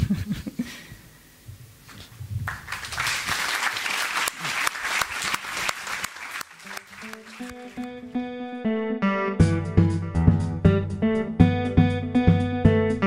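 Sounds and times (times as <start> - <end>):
audience applauding: 2.4 - 8.0
plucked guitar music: 7.0 - 13.0.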